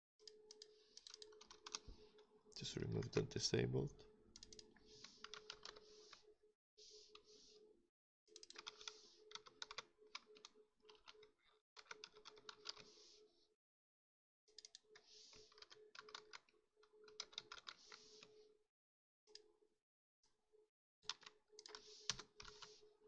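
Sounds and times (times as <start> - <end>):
computer keyboard typing: 0.5 - 1.9, 4.4 - 6.2, 8.3 - 13.0, 14.6 - 18.2, 21.0 - 22.8.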